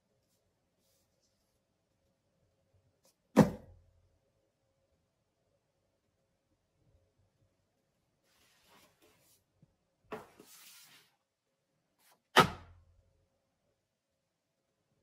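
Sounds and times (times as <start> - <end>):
book thud on stack: 3.4 - 3.7, 12.4 - 12.8
book sliding: 10.1 - 11.2.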